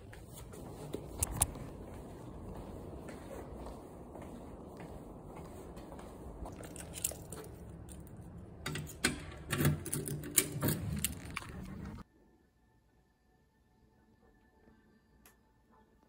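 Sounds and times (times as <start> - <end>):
objects clicking and clattering: 6.6 - 12.0.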